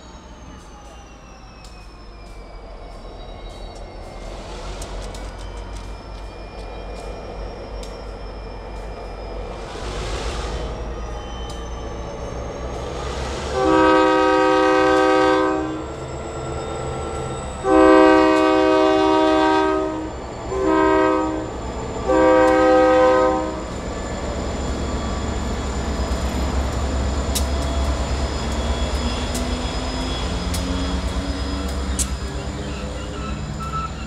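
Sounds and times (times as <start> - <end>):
locomotive air horn blasts: 13.5 - 15.9, 17.6 - 23.7.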